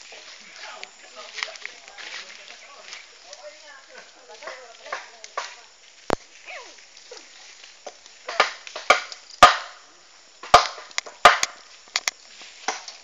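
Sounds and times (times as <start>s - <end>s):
sharp blows on wood: 8.2s - 9.8s, 10.4s - 11.7s.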